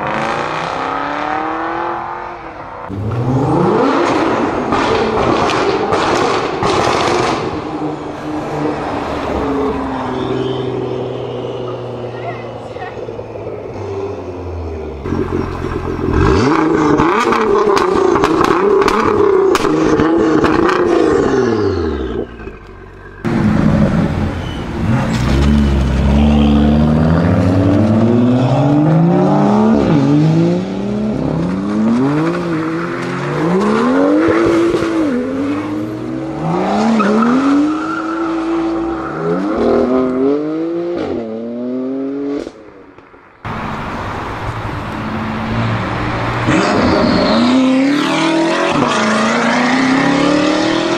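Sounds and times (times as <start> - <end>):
car engine revving: 0.0 - 12.2, 12.9 - 42.6, 43.4 - 50.9
exhaust crackles and pops: 15.0 - 21.0, 21.9 - 23.4
car accelerating through gears: 46.4 - 50.9.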